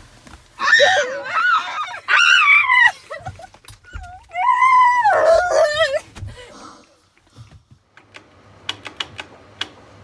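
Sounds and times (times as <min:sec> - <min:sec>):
girl screaming: 0:00.6 - 0:03.2, 0:04.0 - 0:06.0.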